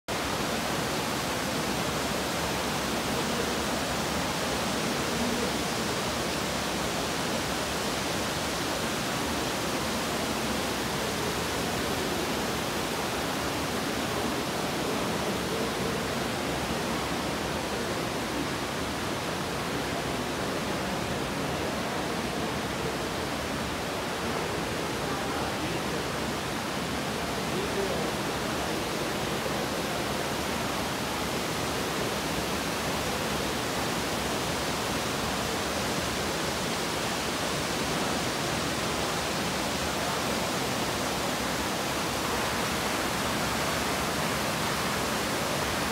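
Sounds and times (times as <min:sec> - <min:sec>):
running water rushing in a cave: 0:00.1 - 0:45.9.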